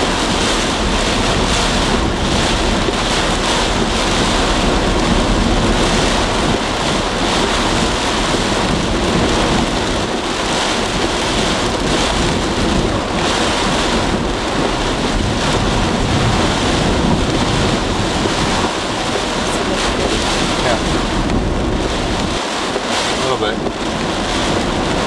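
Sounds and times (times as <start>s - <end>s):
heavy rain and wind on car: 0.0s - 25.0s.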